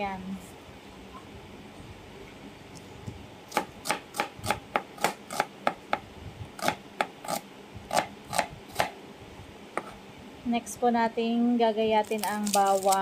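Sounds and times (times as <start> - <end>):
knife chopping onion on plastic board: 3.5 - 6.0, 6.6 - 9.0, 9.8 - 10.0.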